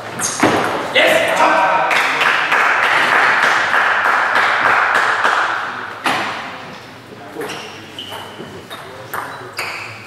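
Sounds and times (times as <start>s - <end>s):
spectators clapping and cheering: 1.4s - 5.8s.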